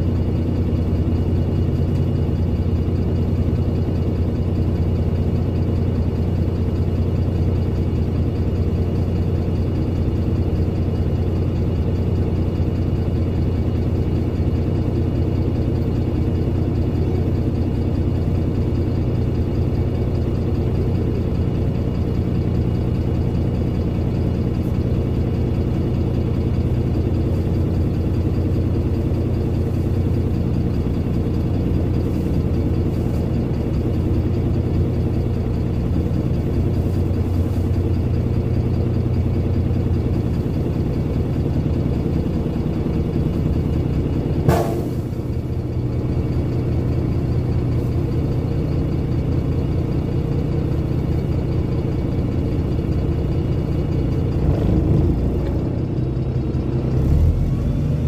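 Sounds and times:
diesel bus engine idling: 0.0 - 58.0
sharp knock: 44.5 - 45.0.

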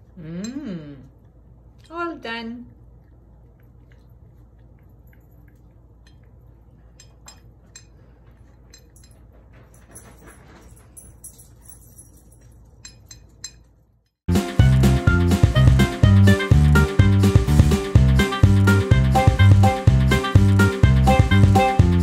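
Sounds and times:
dog eating kibble from a bowl: 3.0 - 12.8.

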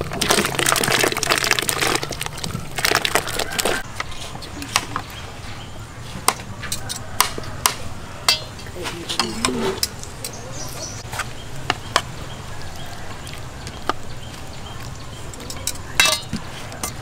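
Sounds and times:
metal utensils clicking on a plate: 6.6 - 7.4, 8.3 - 10.4, 15.3 - 17.0.

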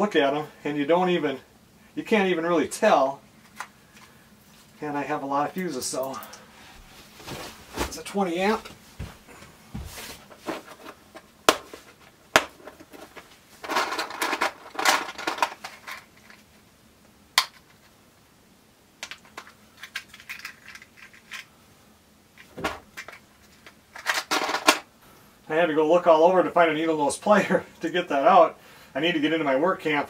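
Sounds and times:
rustling: 5.6 - 16.6
plastic parts clicking and rattling: 12.3 - 16.5, 19.0 - 21.5, 22.4 - 24.9
plastic parts snapping: 19.0 - 21.5.

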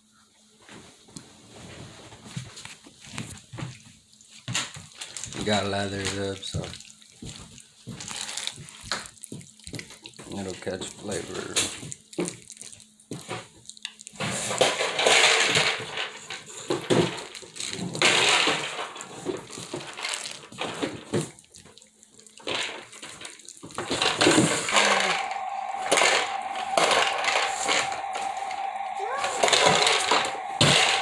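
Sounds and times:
hands rubbing paste into meat: 3.0 - 11.2.

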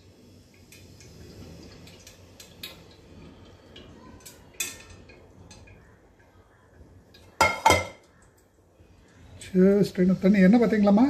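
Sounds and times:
metal utensils clinking on pot: 4.2 - 5.8, 7.4 - 8.1.

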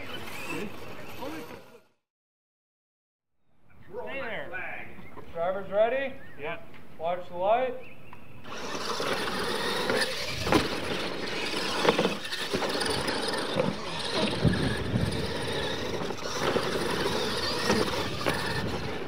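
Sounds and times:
toy truck motors whining: 0.0 - 2.0, 8.4 - 19.0
tyres spraying dirt: 8.5 - 19.0.

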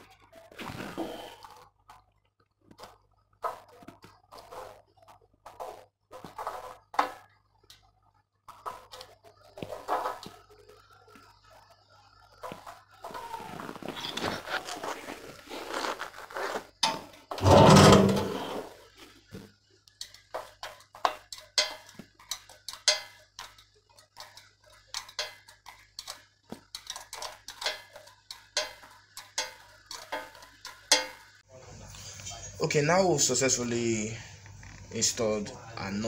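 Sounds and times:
rustling handling: 13.1 - 16.9
tools clinking against metal: 21.0 - 23.2, 28.6 - 31.2.

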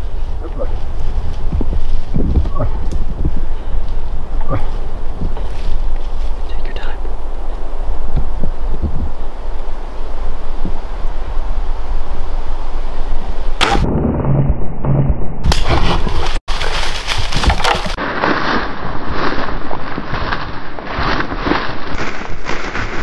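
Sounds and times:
hooves thudding: 0.0 - 6.5, 15.5 - 18.0
branches cracking and snapping: 5.2 - 6.4, 15.5 - 23.0.

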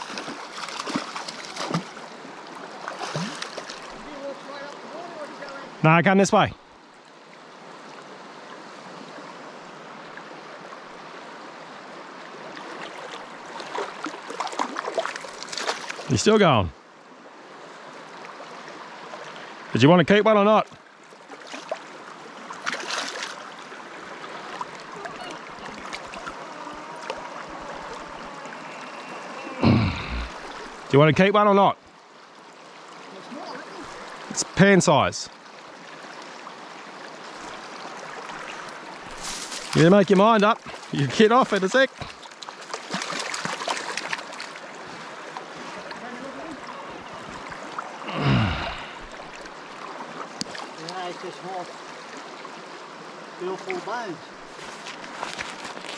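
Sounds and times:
stream running over rocks: 0.0 - 55.9
short falling voice sound: 26.2 - 30.4.

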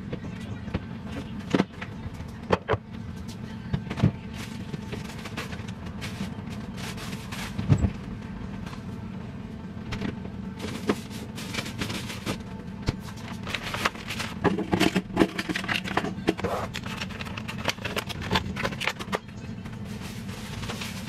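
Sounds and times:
plastic bag crinkling: 13.2 - 14.4.

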